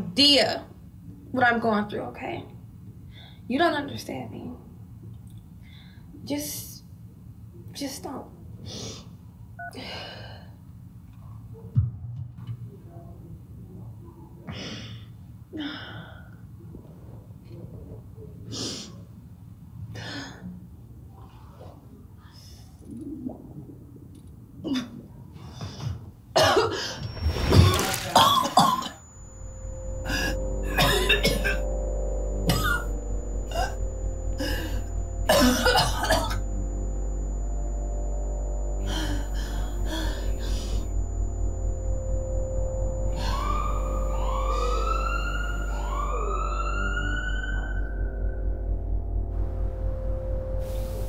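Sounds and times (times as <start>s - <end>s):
woman coughing and gasping: 26.4s - 26.9s, 30.8s - 31.6s
low hum: 27.0s - 51.0s
low steady drone: 28.2s - 51.0s.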